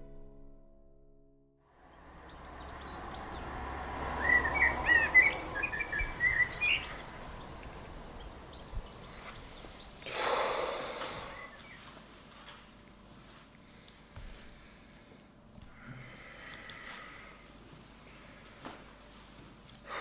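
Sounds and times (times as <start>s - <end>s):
birds chirping: 1.9s - 12.0s
steady background hiss: 5.4s - 20.0s.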